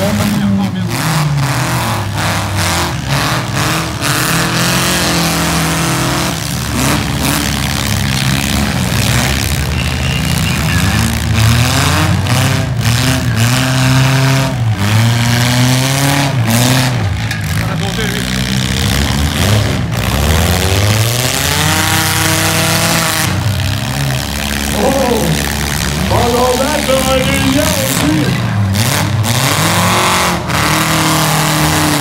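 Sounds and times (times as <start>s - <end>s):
car engines revving: 0.0s - 32.0s.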